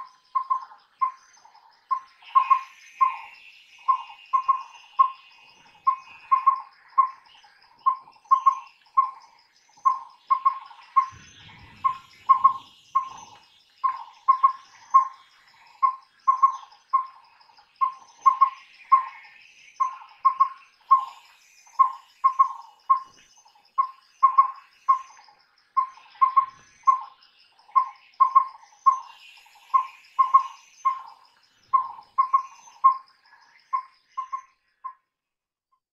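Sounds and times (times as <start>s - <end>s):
owl whistled hoots: 1.9s - 9.2s, 9.9s - 17.2s, 17.8s - 23.2s, 23.8s - 25.1s, 27.8s - 33.1s
high insect-like trill: 1.9s - 34.5s.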